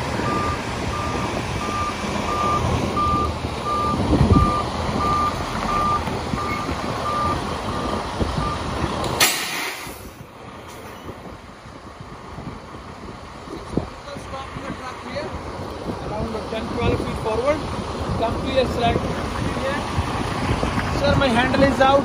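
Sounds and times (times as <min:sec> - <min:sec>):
truck diesel engine running: 0:00.0 - 0:09.2
reversing alarm beeping: 0:00.2 - 0:08.7
air brake hiss: 0:09.2 - 0:10.2.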